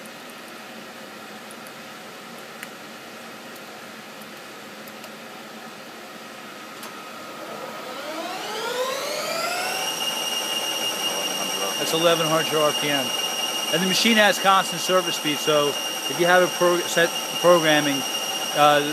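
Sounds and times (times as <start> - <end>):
low machine hum: 5.8 - 18.9
lathe motor whine: 6.8 - 18.9.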